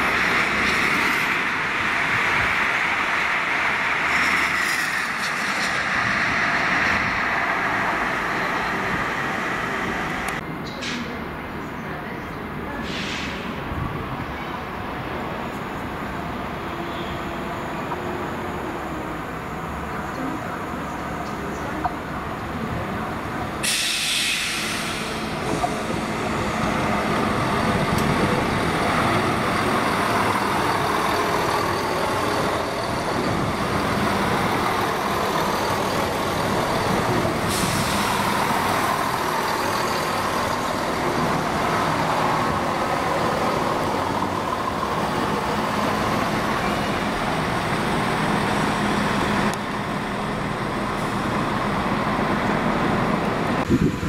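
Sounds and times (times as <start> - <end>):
diesel engine drone: 0.0 - 11.4, 17.4 - 54.0
train wheel and rail noise: 0.0 - 54.0
sharp hiss of air: 12.8 - 13.5, 23.6 - 25.4, 37.4 - 38.5.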